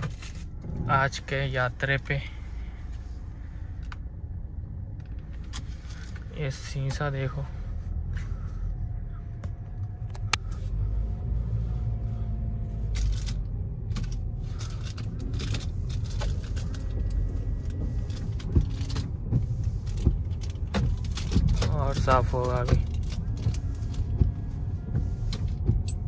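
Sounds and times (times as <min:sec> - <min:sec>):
engine and tyres rumbling: 0:00.0 - 0:26.0
windshield wipers sweeping: 0:10.5 - 0:26.0.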